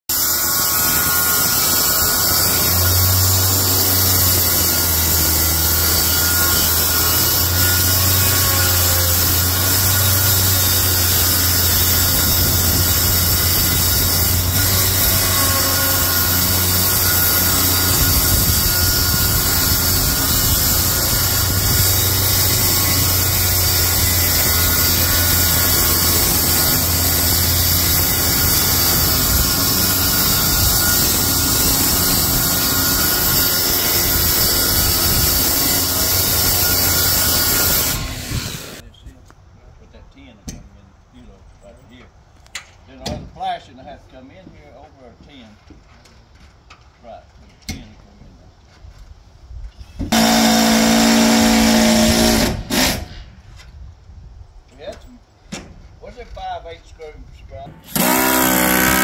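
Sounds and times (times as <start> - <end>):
circular saw cutting plywood: 0.1 - 38.8, 50.0 - 53.3, 57.8 - 59.0.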